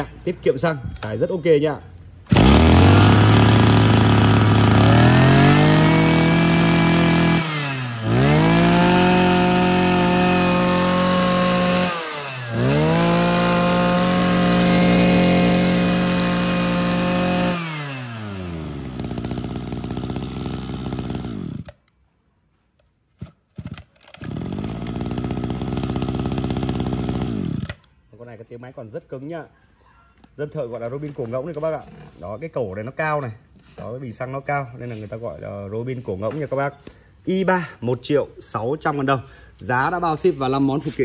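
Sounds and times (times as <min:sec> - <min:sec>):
brush cutter engine revving: 0:02.2 - 0:21.8, 0:23.2 - 0:27.9.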